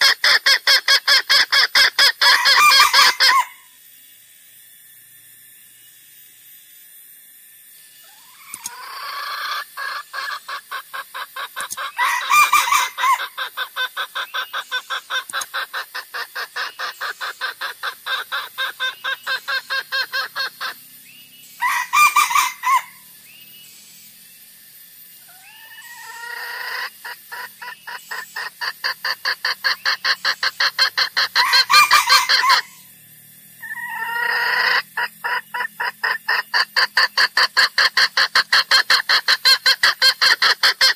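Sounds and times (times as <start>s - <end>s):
rapid bird clucking: 0.0s - 3.6s, 8.1s - 20.8s, 21.6s - 23.0s, 25.3s - 32.8s, 33.6s - 40.9s
louder longer bird calls: 0.0s - 3.8s, 7.7s - 33.0s, 33.6s - 40.9s.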